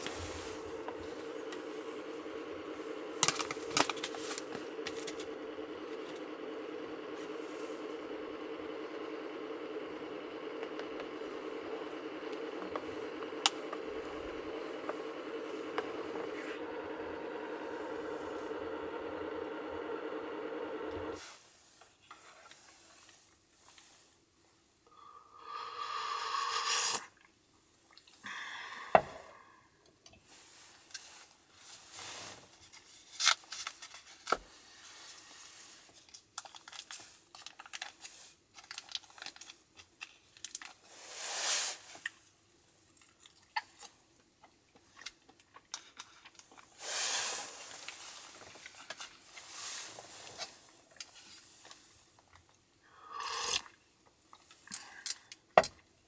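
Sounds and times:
induction cooktop humming: 0:00.0 - 0:21.4
slurping soup: 0:25.6 - 0:27.3, 0:53.0 - 0:53.8
small clicks and rustles: 0:30.0 - 0:40.9, 0:41.9 - 0:46.8, 0:47.7 - 0:52.6
tearing rustle of soft food: 0:30.5 - 0:42.1.

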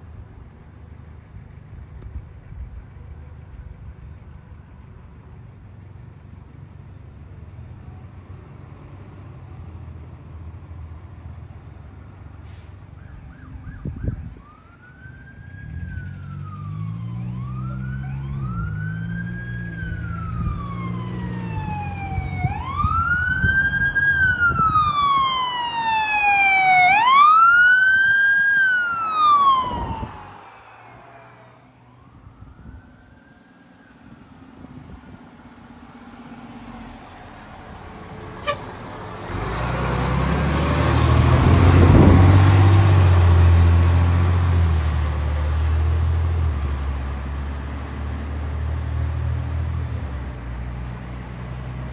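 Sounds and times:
fire engine diesel rumble: 0:00.0 - 0:16.6, 0:17.4 - 0:51.9
electronic siren wailing: 0:13.3 - 0:37.5.

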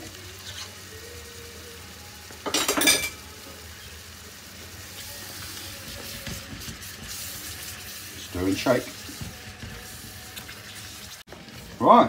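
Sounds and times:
wooden spoon stirring in pan: 0:00.0 - 0:00.9, 0:04.6 - 0:12.0
sauce simmering: 0:05.0 - 0:12.0
spoon knocking and scraping pan: 0:05.8 - 0:07.7, 0:08.5 - 0:11.2.

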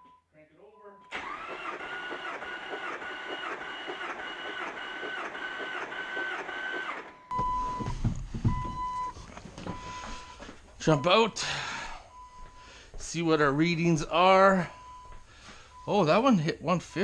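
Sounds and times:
engine cranking on starter: 0:01.1 - 0:07.3
starter motor whine: 0:01.1 - 0:07.6
thumps: 0:07.3 - 0:10.9.

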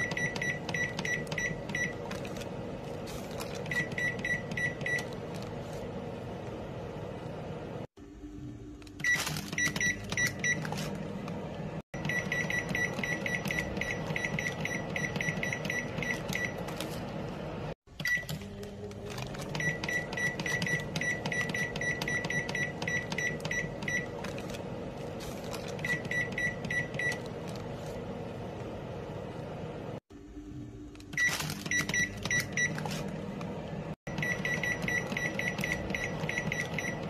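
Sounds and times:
microwave keypad beeps: 0:00.0 - 0:02.2, 0:03.5 - 0:05.2, 0:09.0 - 0:11.0, 0:11.9 - 0:16.8, 0:18.0 - 0:18.6, 0:19.3 - 0:24.6, 0:25.6 - 0:27.4, 0:31.1 - 0:33.2, 0:34.1 - 0:37.0.

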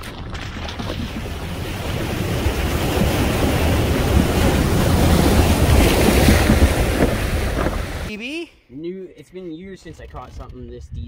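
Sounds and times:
rushing water: 0:00.0 - 0:08.2
wind buffeting microphone: 0:00.8 - 0:08.1, 0:10.0 - 0:11.0.

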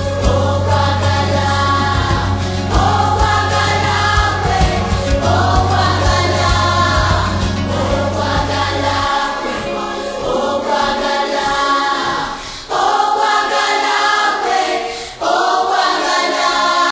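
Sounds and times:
low bass: 0:00.0 - 0:09.9
choir singing: 0:00.0 - 0:16.9.

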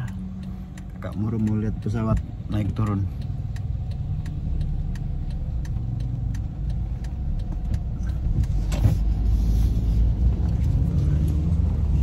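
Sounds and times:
car interior engine and road rumble: 0:00.0 - 0:12.0.

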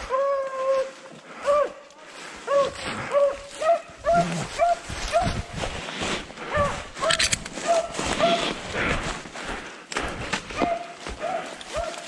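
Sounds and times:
hounds barking: 0:02.4 - 0:05.4, 0:06.5 - 0:08.6, 0:10.5 - 0:12.0.

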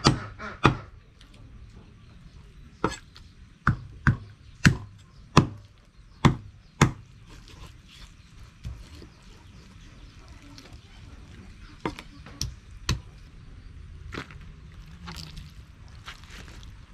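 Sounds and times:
cleaver chopping on wooden board: 0:03.6 - 0:07.1.

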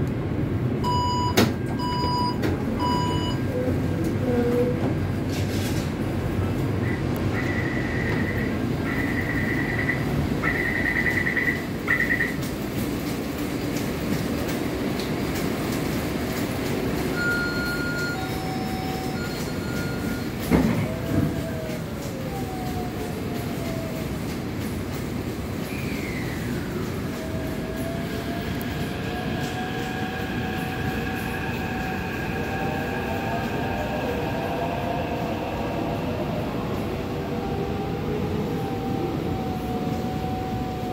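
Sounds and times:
low rumble of standing train: 0:00.0 - 0:40.9
rapidly pulsing warning beep: 0:06.9 - 0:12.4, 0:17.2 - 0:20.5.

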